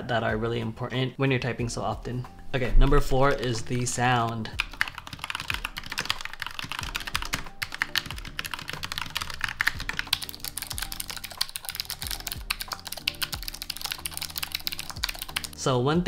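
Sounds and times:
soft background music: 0:00.0 - 0:16.0
mechanical keyboard typing: 0:04.2 - 0:15.6.

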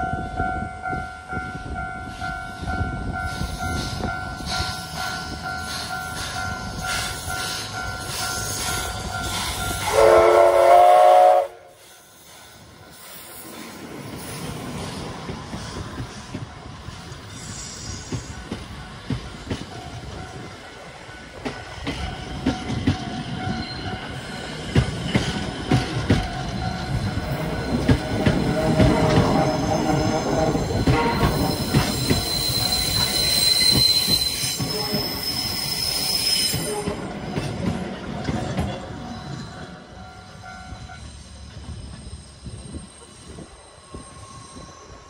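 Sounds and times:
train wheels squealing: 0:02.0 - 0:45.0
train wheels clattering on rails: 0:12.3 - 0:44.0.

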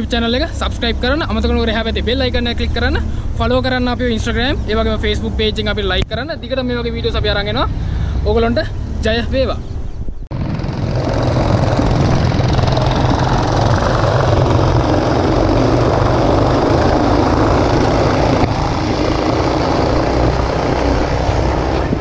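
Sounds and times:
go-kart engines running: 0:10.3 - 0:22.0.

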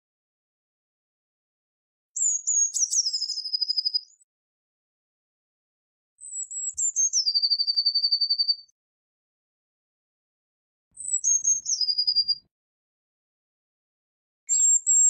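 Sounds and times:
bird singing high trill: 0:02.2 - 0:04.2, 0:06.2 - 0:08.7, 0:11.0 - 0:12.5, 0:14.5 - 0:15.0.

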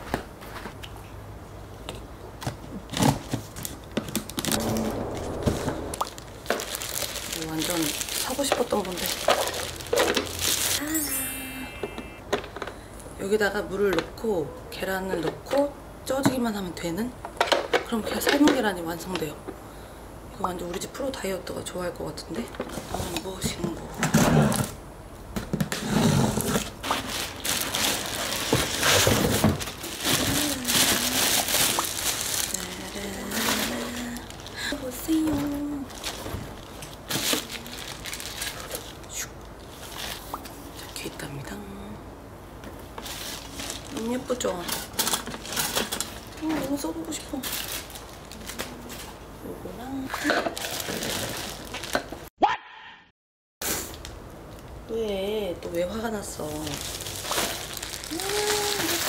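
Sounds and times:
packaging rustling and sliding: 0:02.9 - 0:10.8, 0:25.7 - 0:32.7, 0:43.0 - 0:44.0, 0:50.6 - 0:52.0, 0:56.7 - 0:59.0.

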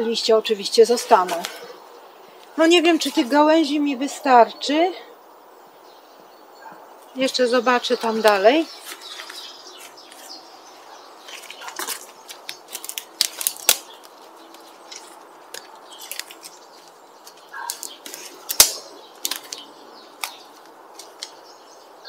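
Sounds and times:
thin branches cracking and snapping: 0:08.0 - 0:21.5.

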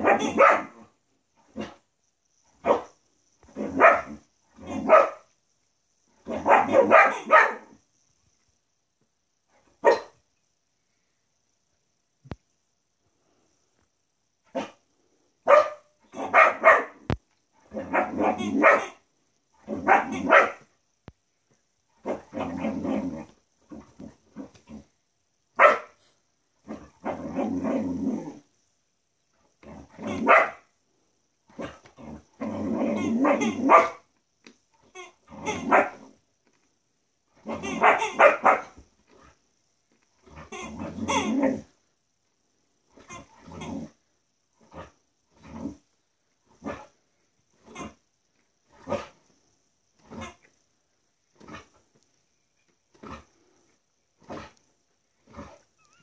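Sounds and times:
dog barking and growling: 0:00.0 - 0:01.9, 0:02.5 - 0:05.3, 0:06.2 - 0:07.8, 0:09.5 - 0:10.2, 0:14.4 - 0:20.7, 0:21.9 - 0:26.0, 0:26.6 - 0:28.5, 0:29.6 - 0:30.7, 0:31.5 - 0:34.1, 0:34.8 - 0:36.2, 0:37.3 - 0:39.5, 0:40.2 - 0:41.8, 0:42.9 - 0:48.0, 0:48.6 - 0:49.3, 0:50.0 - 0:50.5, 0:51.3 - 0:52.0, 0:52.9 - 0:56.0
squeaky toy squeaks: 0:40.5 - 0:41.3.

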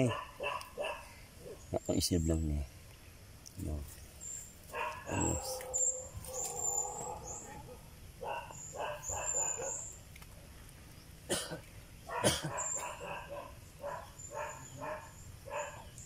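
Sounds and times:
dog barking: 0:00.0 - 0:01.6, 0:04.7 - 0:09.9, 0:12.1 - 0:16.0
faint birds chirping: 0:00.0 - 0:16.0.

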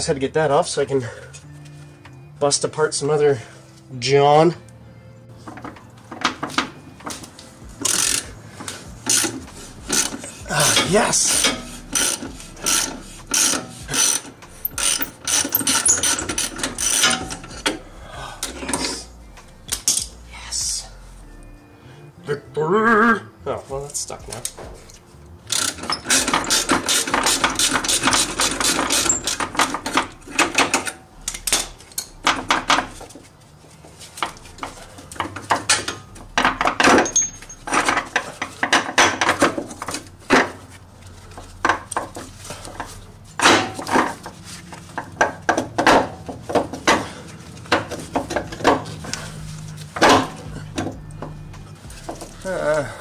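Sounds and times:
metal tools clinking on steel: 0:07.9 - 0:17.8, 0:23.8 - 0:33.0, 0:34.2 - 0:40.0.

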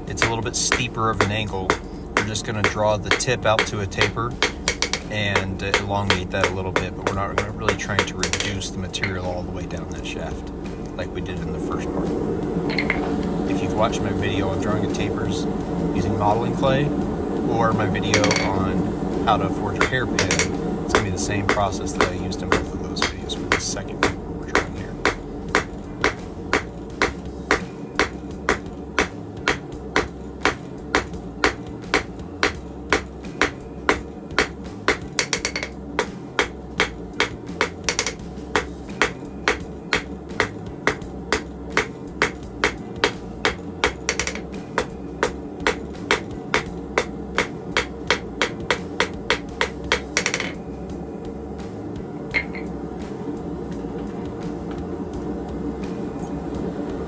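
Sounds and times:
hammer striking hot steel on anvil: 0:00.1 - 0:09.4, 0:17.9 - 0:50.6.

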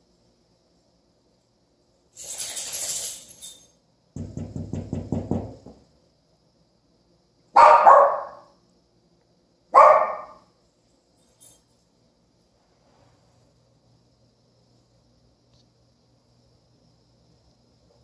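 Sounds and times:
small dog barking: 0:07.5 - 0:08.6, 0:09.7 - 0:10.5.

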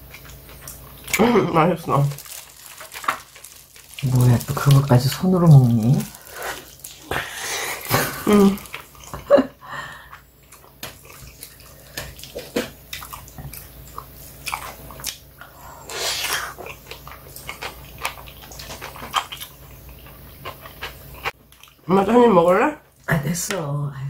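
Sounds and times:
wet chewing and biting: 0:10.4 - 0:15.5, 0:16.2 - 0:21.8.

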